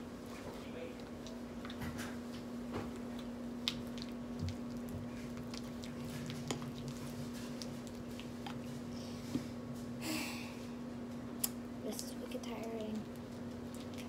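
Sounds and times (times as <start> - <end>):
wet slime squishes: 2.9 - 9.4, 12.7 - 14.0.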